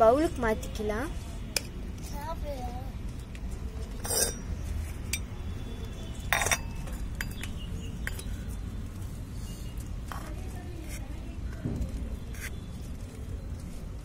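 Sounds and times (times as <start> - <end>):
metal spoon clinking on pots: 4.0 - 4.5, 5.1 - 5.3, 6.2 - 8.4.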